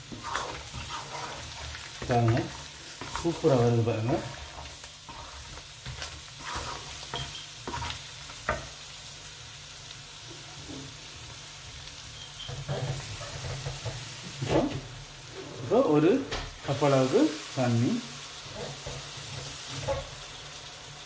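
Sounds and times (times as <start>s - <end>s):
spoon knocking and scraping pan: 0.0s - 8.8s, 12.2s - 14.9s, 18.5s - 20.2s
curry sizzling in hot oil: 0.0s - 21.0s.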